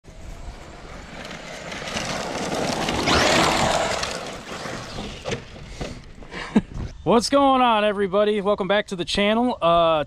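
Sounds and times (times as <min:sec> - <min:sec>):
rc truck speeding past: 0:00.1 - 0:06.0.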